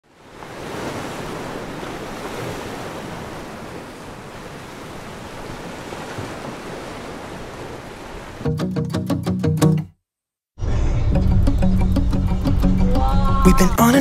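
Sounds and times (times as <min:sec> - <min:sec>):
small waves breaking on beach: 0:00.0 - 0:08.5.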